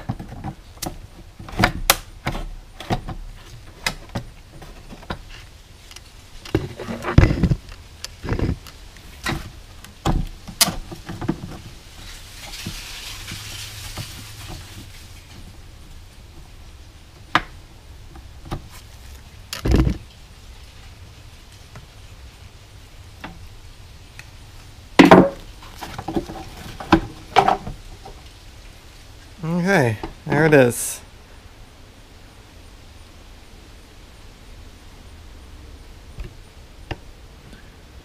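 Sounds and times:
soft rustling: 3.2 - 17.0, 18.2 - 24.8
dull thump: 25.0 - 27.8.

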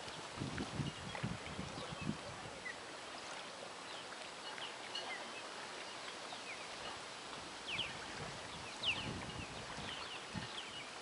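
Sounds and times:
outdoor background hiss: 0.0 - 11.0
small birds chirping: 7.6 - 11.0.

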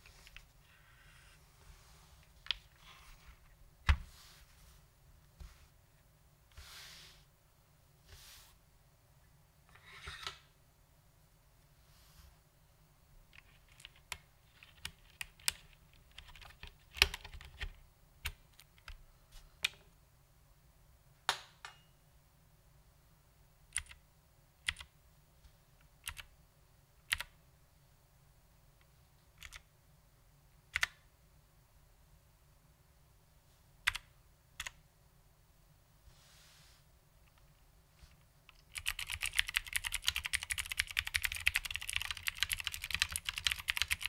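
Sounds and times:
keyboard keys clicking: 38.5 - 44.0.

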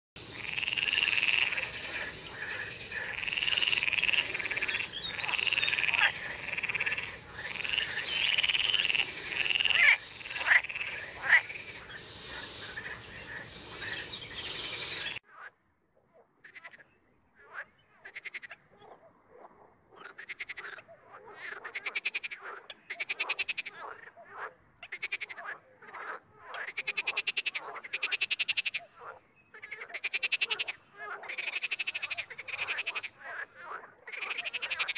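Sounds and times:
frogs croaking: 0.2 - 34.9
steady hiss: 7.9 - 15.2.

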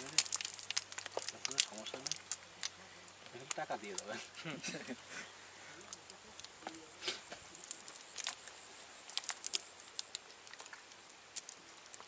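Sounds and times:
wet net clicks and rustles: 0.0 - 3.6, 9.1 - 12.0.

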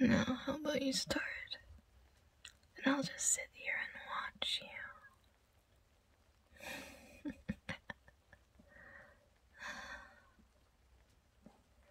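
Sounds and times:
woman breathing out softly: 8.7 - 10.4.

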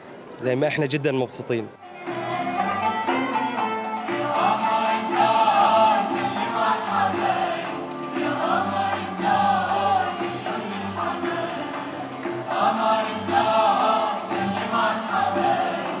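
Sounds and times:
cello: 1.8 - 16.0
mixed choir singing: 1.8 - 16.0
small instrumental ensemble: 1.8 - 16.0
men singing solo: 4.1 - 16.0.

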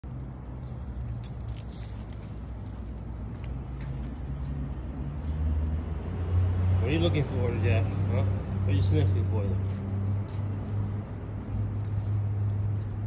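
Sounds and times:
dog collar jingling: 1.0 - 4.2, 10.6 - 13.0.

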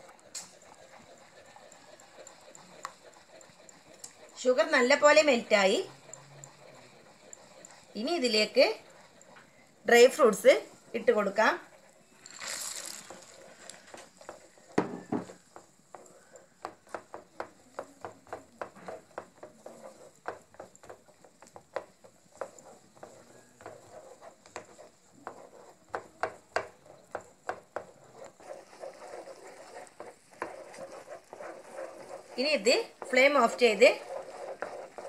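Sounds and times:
wooden spatula scraping a pan: 0.0 - 35.0.

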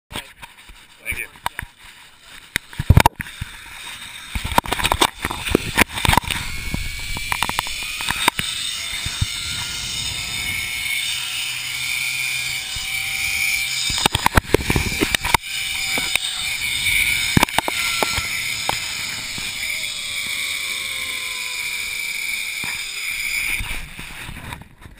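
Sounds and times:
zip line pulleys whining: 2.0 - 24.6
wind rumble on microphone: 4.8 - 10.9.

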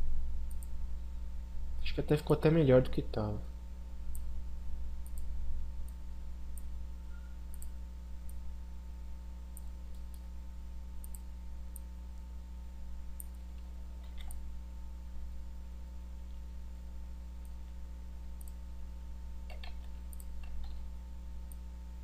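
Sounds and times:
steady low hum: 0.0 - 22.0
computer mouse clicking: 0.5 - 0.7, 5.0 - 6.0, 7.5 - 7.7, 11.0 - 11.8, 14.0 - 14.4, 19.4 - 20.8.

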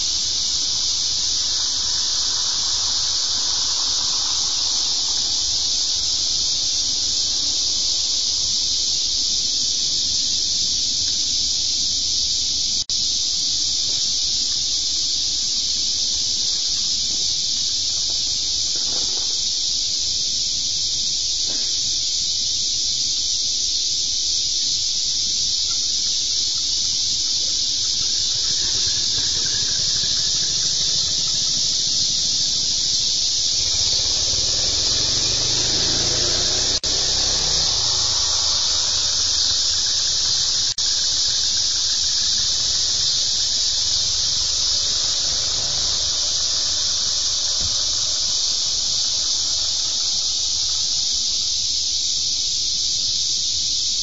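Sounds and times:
car passing rumble: 0.0 - 7.9, 27.3 - 51.0
insect chorus hissing: 0.0 - 54.0.

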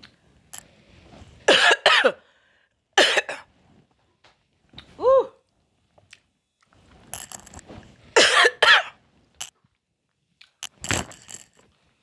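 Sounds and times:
woman coughing: 1.5 - 2.2, 3.0 - 3.5, 8.2 - 9.0.

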